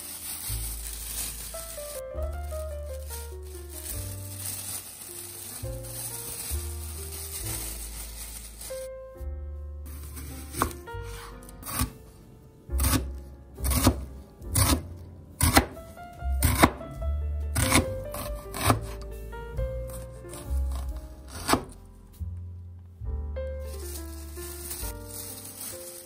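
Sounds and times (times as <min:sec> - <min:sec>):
background music: 0:00.0 - 0:26.0
knife slicing onion on cutting board: 0:10.5 - 0:12.0, 0:12.8 - 0:14.8, 0:15.4 - 0:15.8, 0:16.4 - 0:16.8, 0:17.6 - 0:19.0, 0:20.3 - 0:21.7.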